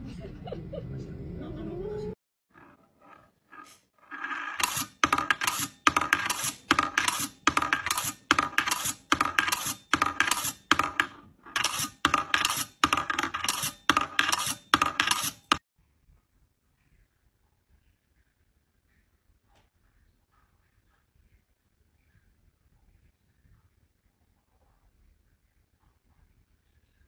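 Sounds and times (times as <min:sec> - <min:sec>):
steel ball rattling on metal rails: 0:02.5 - 0:15.6.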